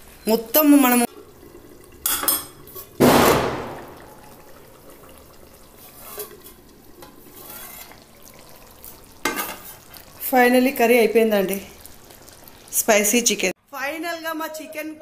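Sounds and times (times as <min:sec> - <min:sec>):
pan and lid clattering: 0:09.2 - 0:09.8.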